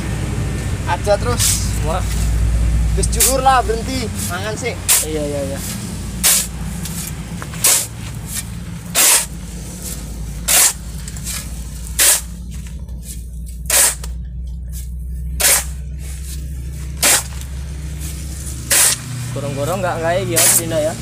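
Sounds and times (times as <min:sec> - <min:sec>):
steady low hum: 0:00.0 - 0:21.0
shovel scraping into gravelly sand: 0:04.2 - 0:12.3, 0:14.8 - 0:19.3.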